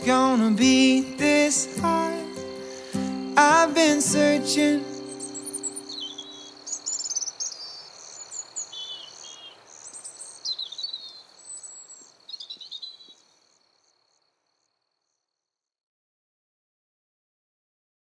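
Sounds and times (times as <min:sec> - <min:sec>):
birds chirping and singing: 0:00.0 - 0:13.2
cricket trill: 0:00.0 - 0:15.5.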